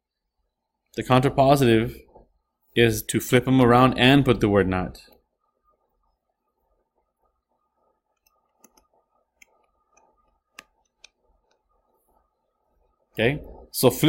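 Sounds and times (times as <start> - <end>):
stylus tapping tablet screen: 5.1 - 13.1.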